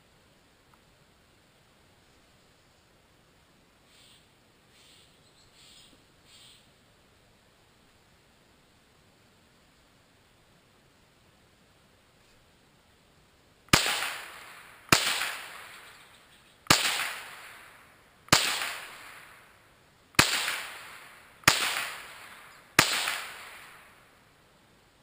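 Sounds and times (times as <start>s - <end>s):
rifle shots with echo: 13.7s - 24.2s.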